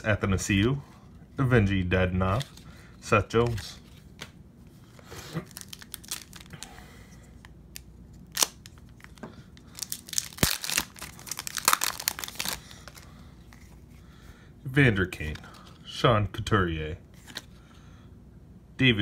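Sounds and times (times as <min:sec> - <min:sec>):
foil wrapper crinkling: 0:05.0 - 0:06.7, 0:07.7 - 0:13.1.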